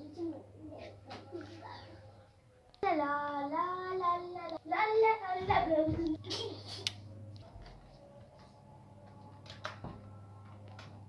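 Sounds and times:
child's sing-song voice: 0:00.0 - 0:06.8
steady low hum: 0:00.0 - 0:11.0.

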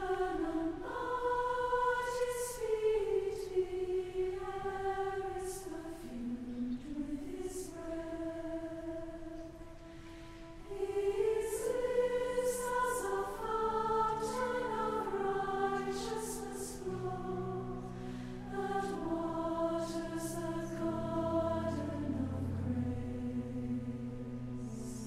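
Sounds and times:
women's choir singing a hymn: 0:00.0 - 0:25.0.

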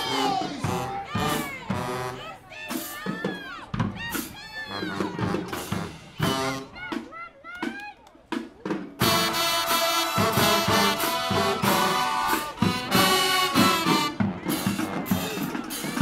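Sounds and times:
brass chords: 0:00.0 - 0:02.9, 0:04.1 - 0:06.9, 0:09.0 - 0:16.0
drumline beat: 0:00.0 - 0:16.0.

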